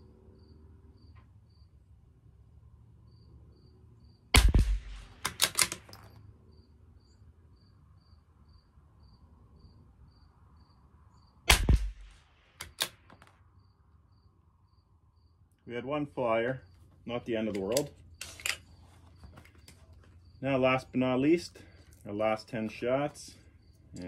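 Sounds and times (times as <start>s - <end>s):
crickets chirping: 0.0s - 4.3s, 5.8s - 11.4s, 12.1s - 24.0s
rifle shots: 4.3s - 6.2s, 11.5s - 13.2s
rifle bolt metallic clicks: 4.4s - 6.2s, 12.6s - 13.3s, 17.4s - 18.7s.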